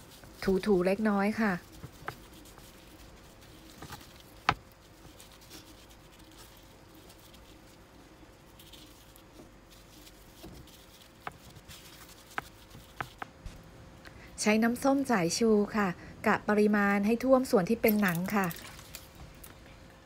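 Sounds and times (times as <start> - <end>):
plastic gloves rustling on meat: 0.0 - 13.4.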